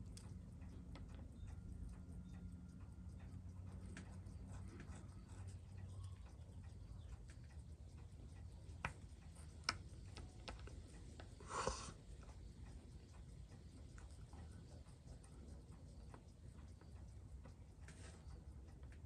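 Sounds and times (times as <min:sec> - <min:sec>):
small tool clicks and taps: 0:08.4 - 0:11.3
short hiss: 0:11.4 - 0:12.0.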